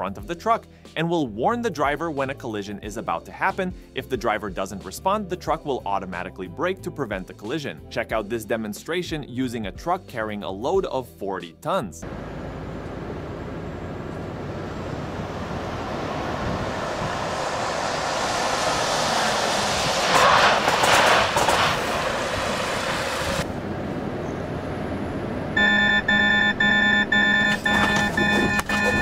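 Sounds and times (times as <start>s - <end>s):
truck and car passing: 12.0s - 29.0s
rapid electronic warning beeps: 25.6s - 29.0s.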